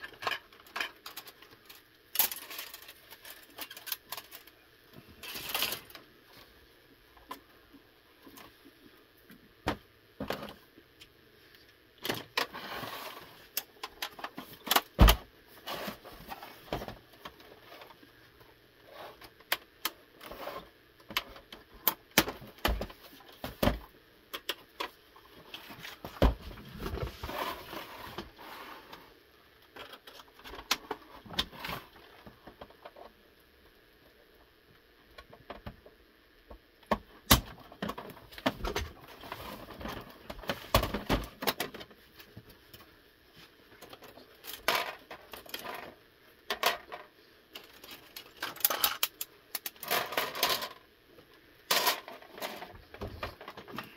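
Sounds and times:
plastic and metal parts clicking: 0.0s - 4.6s, 46.5s - 50.8s.

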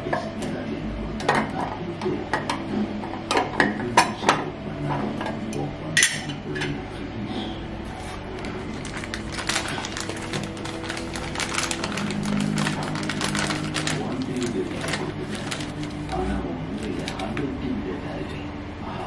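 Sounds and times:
plastic packet crinkling: 8.0s - 17.5s.

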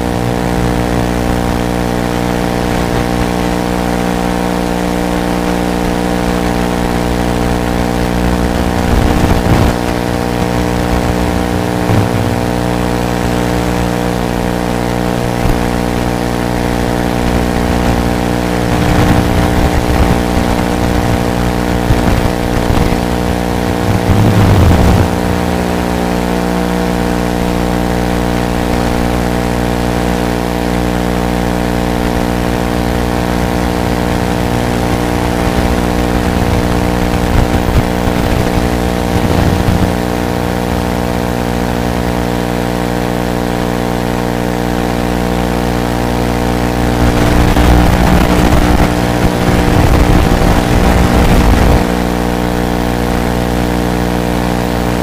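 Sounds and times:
drone buzzing: 0.0s - 55.0s
air rushing: 8.4s - 13.4s, 20.7s - 26.4s.

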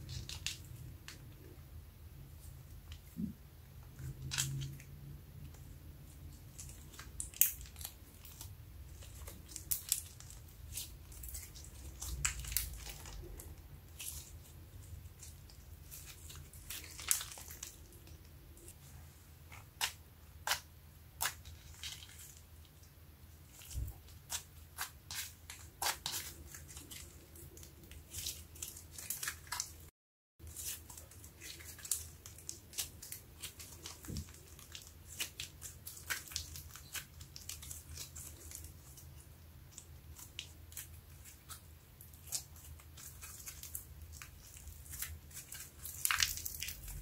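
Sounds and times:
slime squelching and popping: 30.4s - 47.0s.

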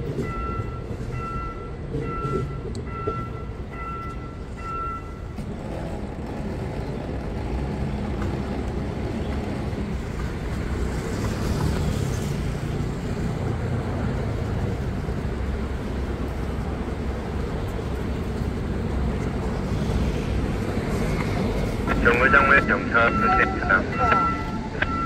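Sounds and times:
level-crossing warning beeping: 0.0s - 5.9s, 21.1s - 25.0s
rumble of passing vehicles: 0.0s - 25.0s.

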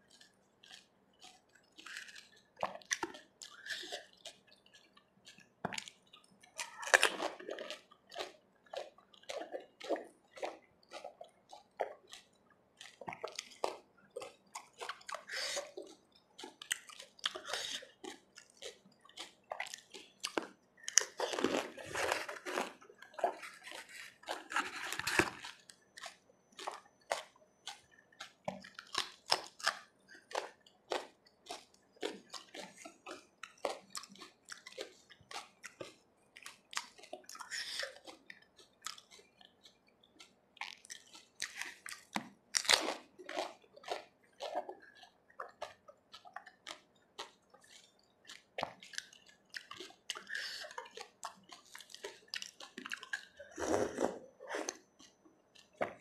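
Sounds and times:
wet chewing: 0.0s - 56.0s
crisp shells crunching: 19.8s - 25.7s.

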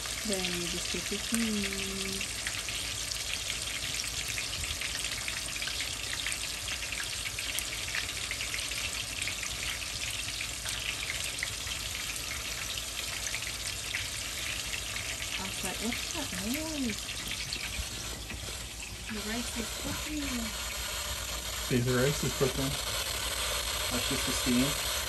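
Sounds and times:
rice sizzling and crackling: 0.0s - 25.0s
steam escaping: 14.1s - 25.0s.

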